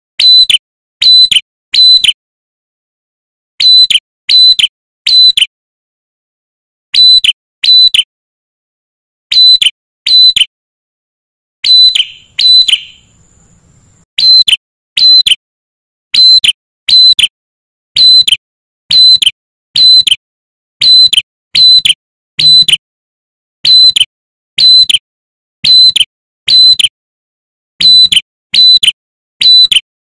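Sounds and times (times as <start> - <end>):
bird singing whistled notes: 0.2 - 2.2, 3.6 - 5.5, 7.0 - 8.1, 9.3 - 10.5, 11.6 - 15.4, 16.2 - 17.3, 18.0 - 18.3, 18.9 - 19.2, 19.8 - 20.1, 20.8 - 22.8, 23.6 - 24.0, 24.6 - 24.9, 25.6 - 26.8, 27.8 - 29.8.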